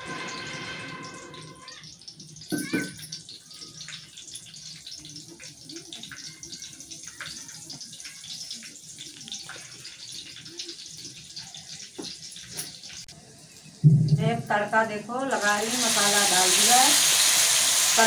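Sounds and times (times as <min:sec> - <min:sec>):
frying hiss in hot oil: 0:00.0 - 0:18.0
crackles and pops: 0:07.0 - 0:13.7.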